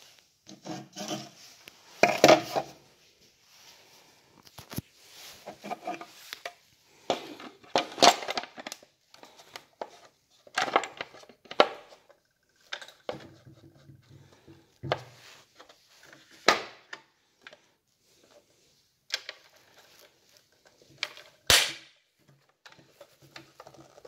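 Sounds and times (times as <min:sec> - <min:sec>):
hard plastic clicks and scraping: 0:05.4 - 0:17.7, 0:19.1 - 0:21.5.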